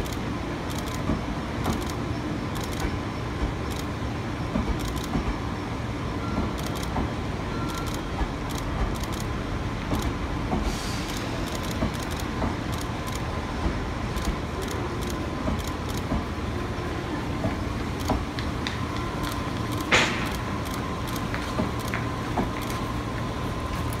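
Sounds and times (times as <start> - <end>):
train wheels rumbling: 0.0 - 24.0
wheels clanking over rail joints: 6.3 - 24.0.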